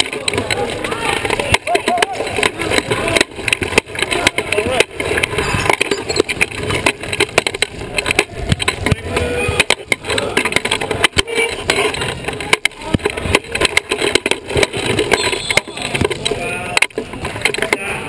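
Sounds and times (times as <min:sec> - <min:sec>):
wheelchair rattling and knocking: 0:00.0 - 0:17.9
wheelchairs knocking and clacking: 0:00.0 - 0:18.0.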